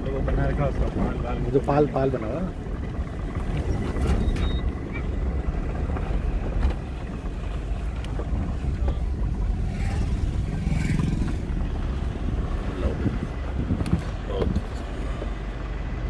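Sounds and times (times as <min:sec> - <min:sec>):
engine and road rumble: 0:00.0 - 0:16.0
vehicle knocks and rattles: 0:02.4 - 0:09.6.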